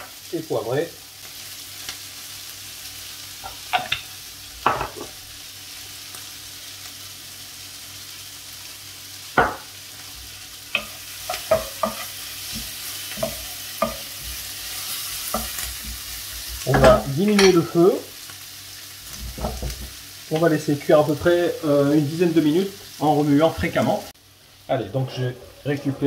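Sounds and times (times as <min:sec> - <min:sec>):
vegetables sizzling in a pan: 0:00.0 - 0:26.0
wooden spatula scraping a pan: 0:24.9 - 0:26.0.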